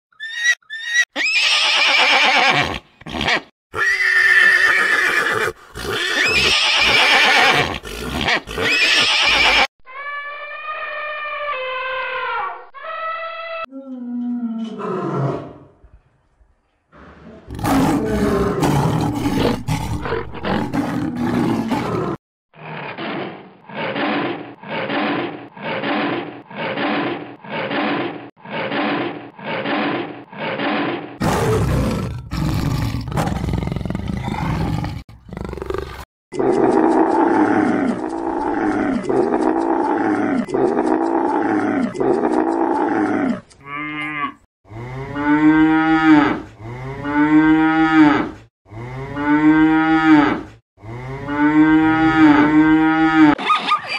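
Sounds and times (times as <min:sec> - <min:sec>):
lion roaring: 0:17.0 - 0:53.4
rhythmic grunting roars: 0:17.5 - 0:22.2.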